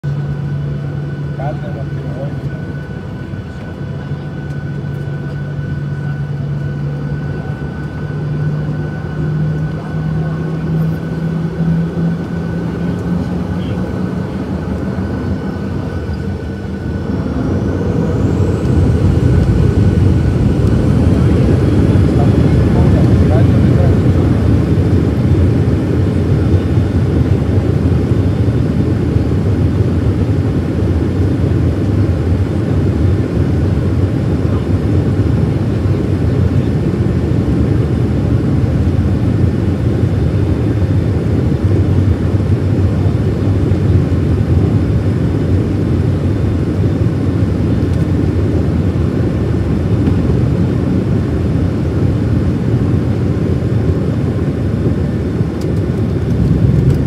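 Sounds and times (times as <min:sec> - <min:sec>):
jet engine deep rumble: 0:00.0 - 0:57.0.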